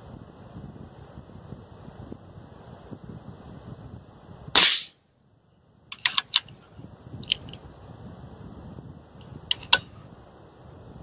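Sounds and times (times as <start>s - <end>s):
air rifle action clicking: 5.9s - 6.6s, 7.2s - 7.6s, 9.5s - 9.9s.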